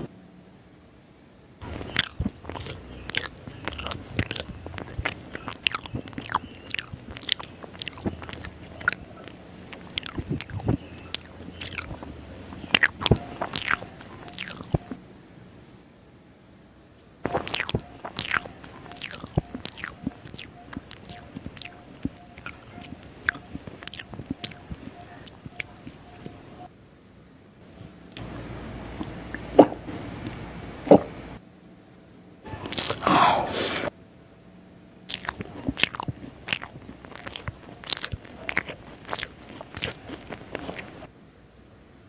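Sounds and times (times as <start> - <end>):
lip smacks: 1.6 - 15.0, 17.2 - 26.7, 32.5 - 33.9, 35.1 - 41.1
wet chewing: 1.6 - 15.0, 17.2 - 26.7, 32.5 - 33.9, 35.1 - 41.1.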